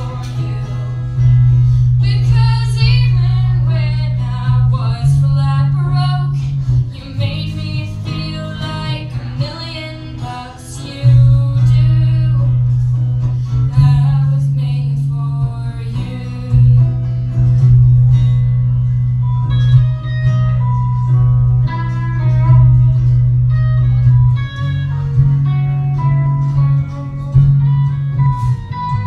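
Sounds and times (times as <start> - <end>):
electric guitar: 0.0 - 29.0
girl singing with vibrato: 2.0 - 12.8, 13.6 - 17.4.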